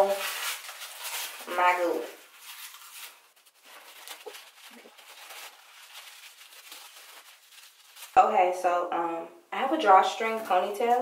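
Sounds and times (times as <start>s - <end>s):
fabric scarf rustling: 0.0s - 8.2s.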